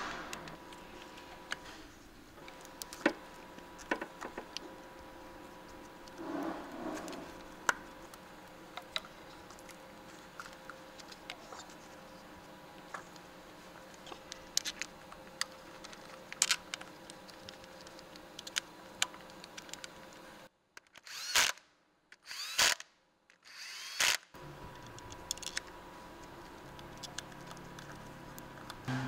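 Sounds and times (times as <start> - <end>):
faint hum: 0.0 - 20.5.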